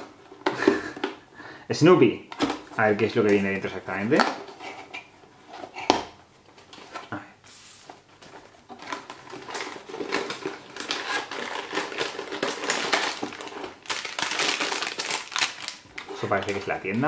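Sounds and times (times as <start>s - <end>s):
plastic bag crinkling: 8.7s - 17.0s.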